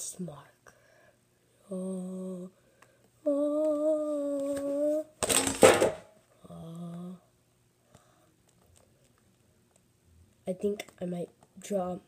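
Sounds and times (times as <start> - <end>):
boy humming: 1.7 - 2.6, 3.2 - 5.2, 6.4 - 7.3.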